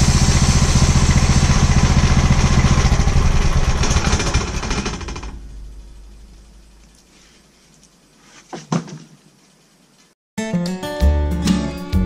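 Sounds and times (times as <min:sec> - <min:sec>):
gasoline engine running: 0:00.0 - 0:06.1.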